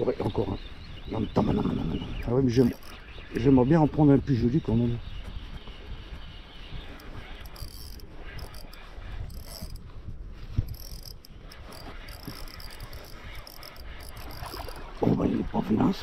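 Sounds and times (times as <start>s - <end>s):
fishing reel clicking and whirring: 2.5s - 3.5s, 5.5s - 15.0s.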